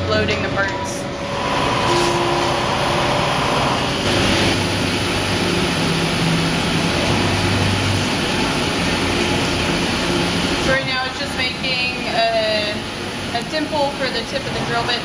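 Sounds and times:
cnc mill machining hum: 0.0 - 15.0.

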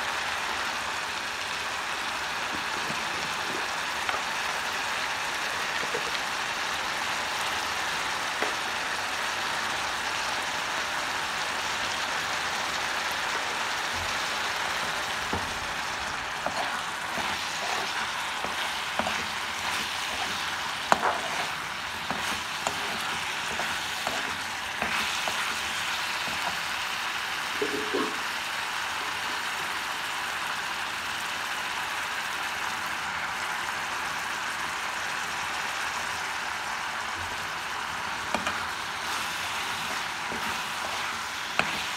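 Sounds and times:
chicken sizzling in oil: 0.0 - 41.9
spoon scraping against pan: 14.8 - 26.8, 38.3 - 41.9.

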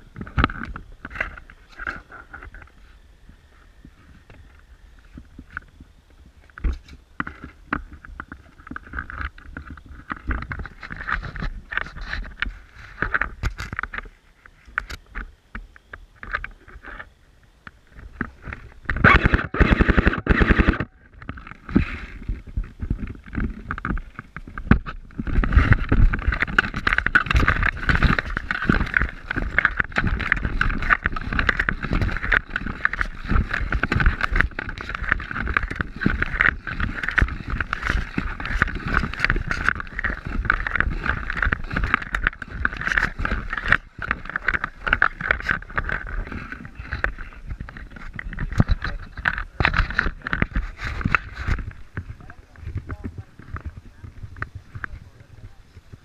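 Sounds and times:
fabric rubbing against microphone: 9.6 - 13.4, 18.3 - 56.0.

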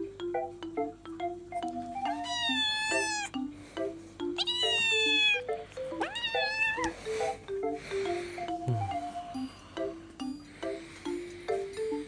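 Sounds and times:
background music with marimba notes: 0.0 - 12.0
kitten meowing: 2.1 - 3.3, 4.4 - 6.9.

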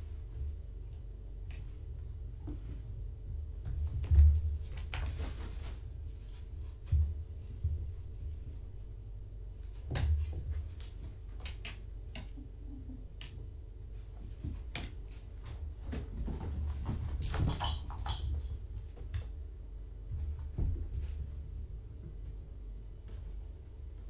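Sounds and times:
kittens scuffling and tapping: 0.0 - 24.0
low room hum: 0.0 - 24.0.

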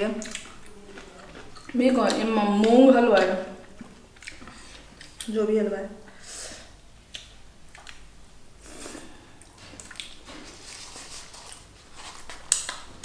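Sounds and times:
chewing with wet mouth clicks: 0.0 - 5.4, 7.0 - 8.1, 9.4 - 10.2.

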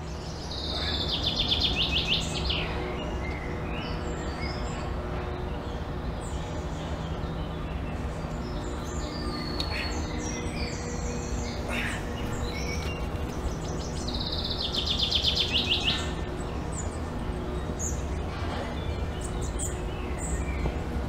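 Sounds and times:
birds chirping and calling: 0.0 - 21.0
bird trill: 8.2 - 20.7.

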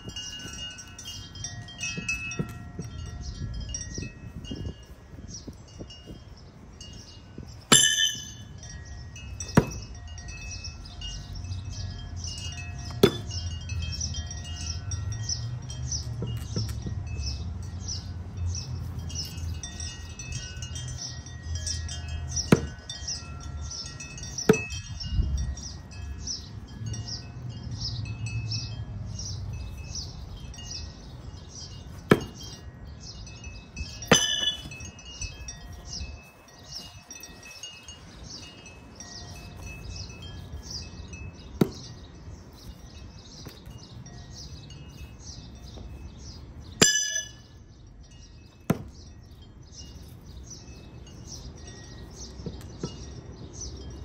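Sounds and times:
wind chimes tinkling: 0.0 - 54.0
wind rumble on microphone: 0.0 - 54.0
knives striking wooden log: 9.4 - 9.8, 12.9 - 13.3, 24.4 - 24.7, 32.0 - 32.4, 34.1 - 34.7, 41.6 - 41.8, 48.7 - 49.0.

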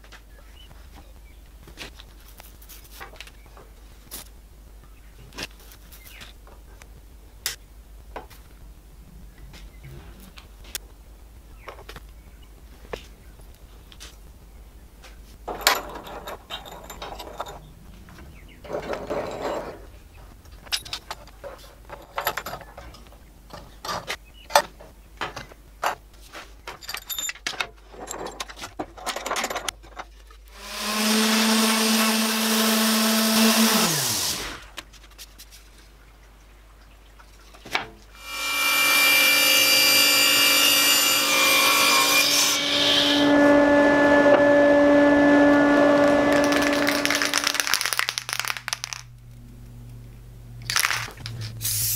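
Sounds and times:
power tool running: 30.6 - 34.6, 38.2 - 47.7
table saw running: 30.6 - 34.6, 38.2 - 47.7.

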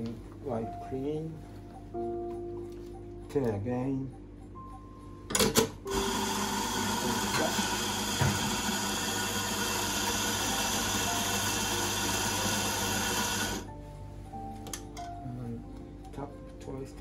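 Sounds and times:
coffee grinder motor: 5.9 - 13.7.

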